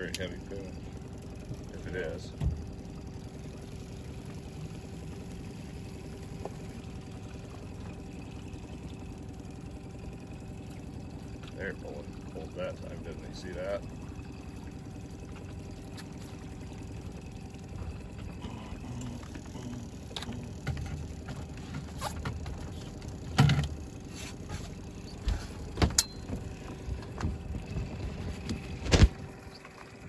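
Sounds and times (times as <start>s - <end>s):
outboard motor running: 0.0s - 30.0s
knocks of handling on boat: 2.2s - 2.9s, 15.0s - 29.6s.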